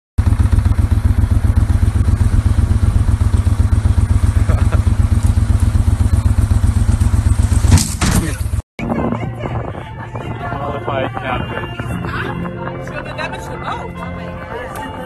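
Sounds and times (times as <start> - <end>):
boat motor idling: 0.2 - 7.7.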